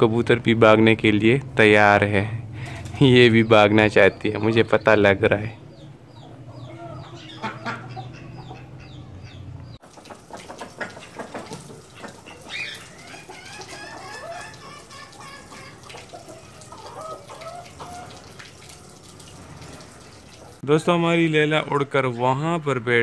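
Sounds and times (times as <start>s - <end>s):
ducks splashing in water: 2.5s - 4.4s, 6.6s - 8.9s, 9.8s - 20.6s
chickens clucking: 2.6s - 20.6s.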